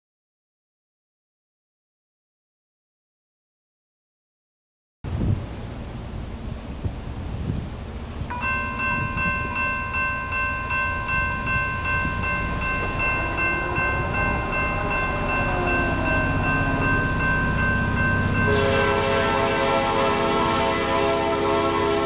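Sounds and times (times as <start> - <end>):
low rumble of train: 5.1 - 22.0
train horn chord: 11.0 - 22.0.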